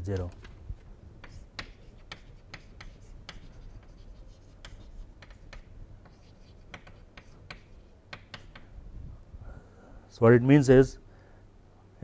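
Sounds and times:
chalk tapping and scratching on board: 1.2s - 8.7s.

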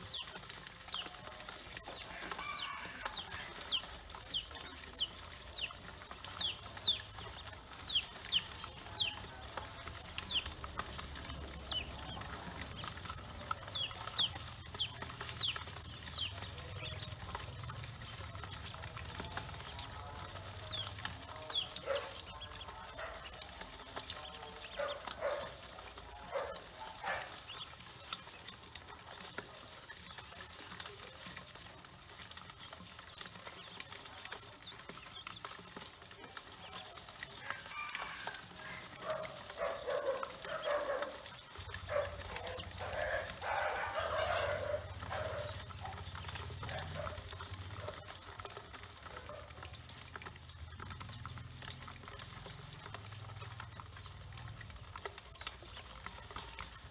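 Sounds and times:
poultry calling: 41.9s - 47.2s.

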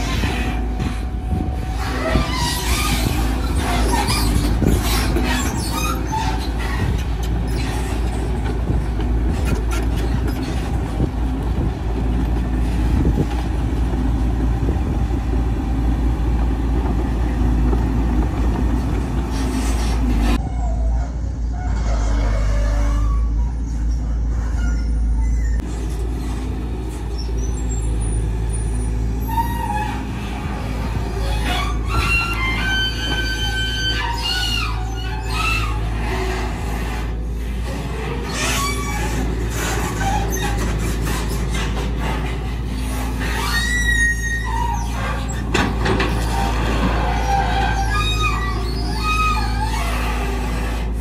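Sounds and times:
excavator diesel engine running: 0.0s - 51.0s.

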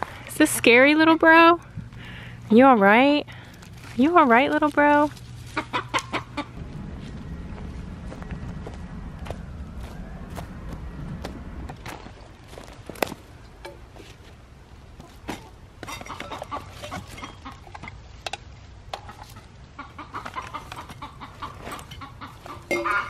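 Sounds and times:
hens clucking and squawking: 5.3s - 6.7s, 14.9s - 18.2s, 18.8s - 23.0s.

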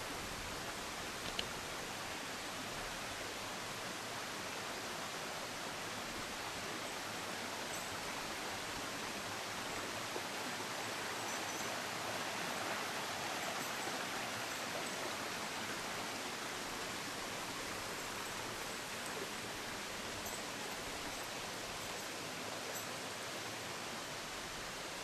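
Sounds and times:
stream rushing over rocks: 0.0s - 25.0s.

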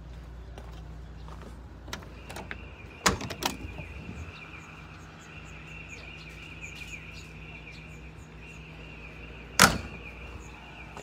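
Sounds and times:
loud metal door clunks: 2.2s - 3.9s, 9.6s - 10.2s.

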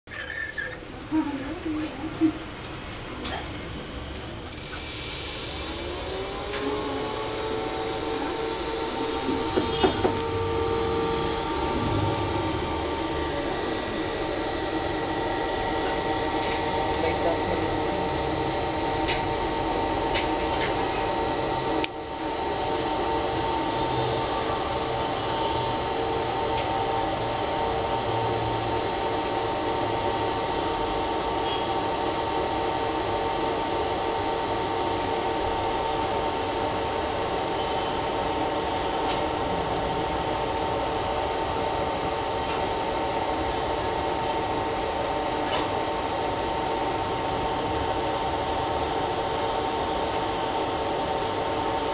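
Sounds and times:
steady machine hum: 0.1s - 51.9s.

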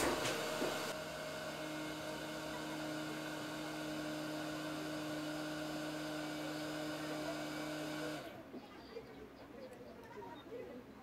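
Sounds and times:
hot air station blowing: 0.0s - 8.4s.

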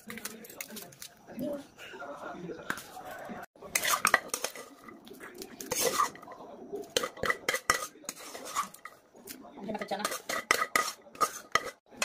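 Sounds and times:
spoon scraping a metal plate: 3.6s - 5.0s, 5.6s - 9.0s, 9.7s - 12.0s.

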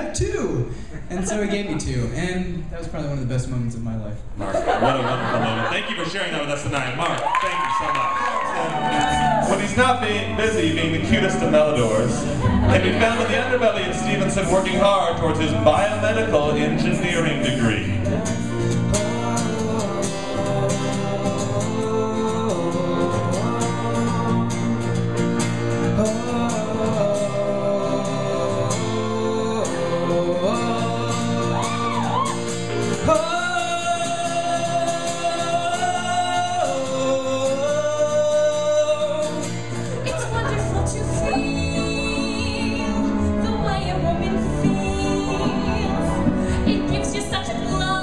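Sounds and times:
piano: 7.1s - 48.0s
acoustic guitar: 7.9s - 48.0s
guitarist singing: 8.0s - 48.0s
man singing: 8.2s - 25.0s, 25.6s - 40.2s, 41.1s - 43.4s, 44.4s - 46.4s.

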